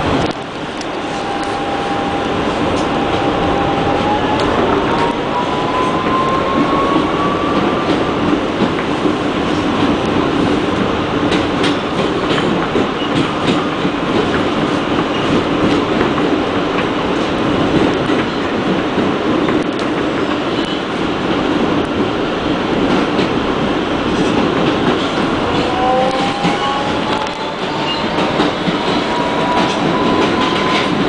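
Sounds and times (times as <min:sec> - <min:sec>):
wheels rumbling on rail: 0:00.0 - 0:31.0.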